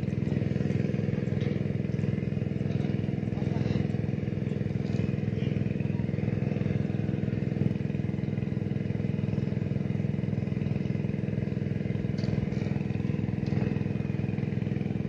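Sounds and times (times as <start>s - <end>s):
engine running steadily: 0.0s - 15.0s.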